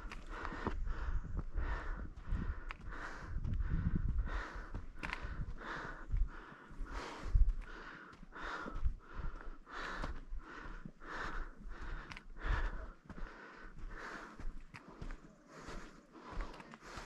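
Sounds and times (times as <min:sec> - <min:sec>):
person breathing hard: 0:00.0 - 0:17.0.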